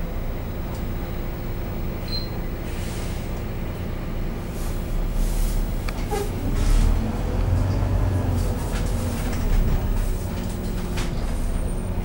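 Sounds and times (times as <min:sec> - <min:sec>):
bus diesel engine idling: 0:00.0 - 0:12.0
brief high squeak: 0:02.0 - 0:02.4, 0:06.1 - 0:06.4.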